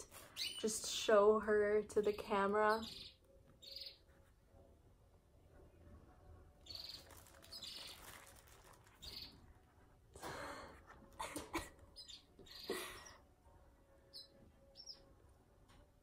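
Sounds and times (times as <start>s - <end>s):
faint high chirps: 6.4s - 9.5s
plastic rustling: 6.7s - 9.6s.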